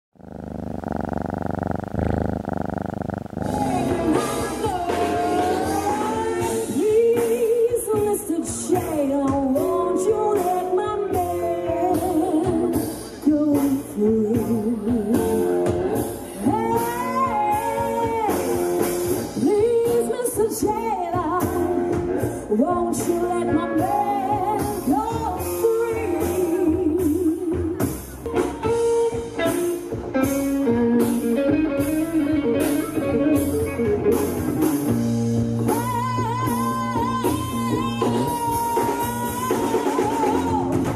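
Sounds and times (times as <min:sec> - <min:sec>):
woman singing with vibrato: 0:03.4 - 0:12.7
rock and roll band playing: 0:03.4 - 0:40.9.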